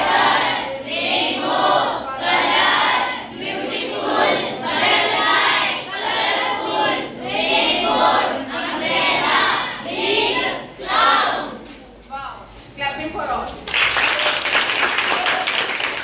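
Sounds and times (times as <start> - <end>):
students reading aloud in unison: 0.0 - 12.0.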